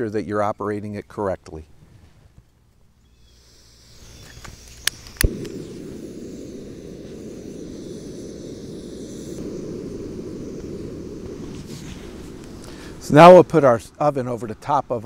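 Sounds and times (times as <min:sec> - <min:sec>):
fuel hissing: 0:03.1 - 0:15.0
burner burning with low rush: 0:03.4 - 0:15.0.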